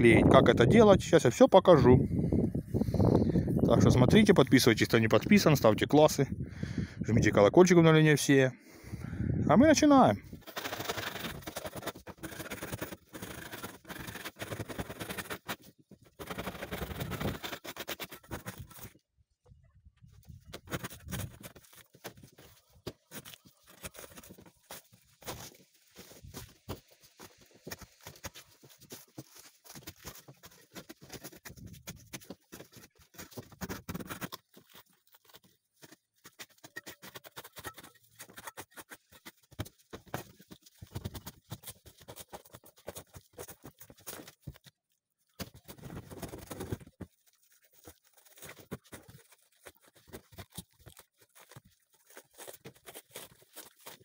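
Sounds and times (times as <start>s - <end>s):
roofing felt scraped and torn: 9.9s - 19.0s, 20.3s - 54.0s.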